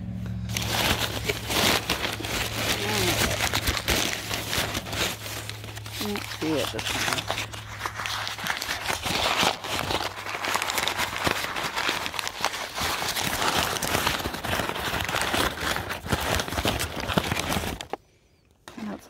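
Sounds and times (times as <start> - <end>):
low steady hum: 0.0 - 19.0
wrapping material crinkling: 0.5 - 18.0.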